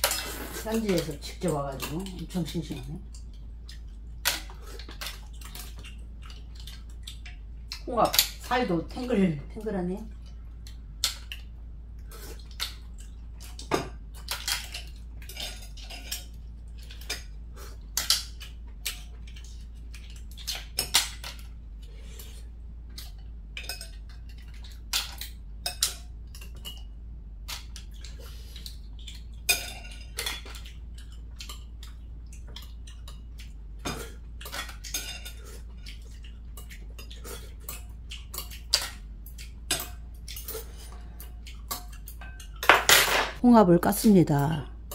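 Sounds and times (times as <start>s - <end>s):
chopsticks and spoons clinking on bowls: 23.0s - 26.9s, 29.0s - 43.5s.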